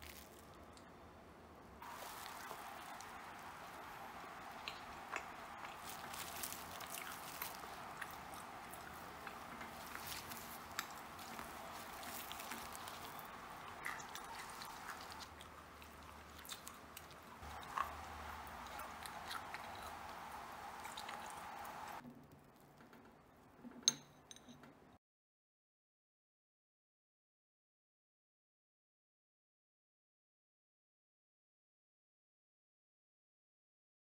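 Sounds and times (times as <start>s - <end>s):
plastic wrapper crackling: 0.0s - 0.5s, 5.4s - 17.6s
steady hiss: 1.8s - 22.0s.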